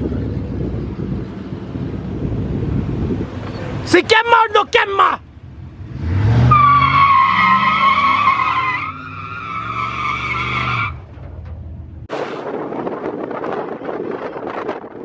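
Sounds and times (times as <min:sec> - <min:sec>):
wind buffeting microphone: 0:00.0 - 0:04.2, 0:11.2 - 0:15.0
engine revving: 0:05.3 - 0:11.0
tyres squealing: 0:06.4 - 0:11.4.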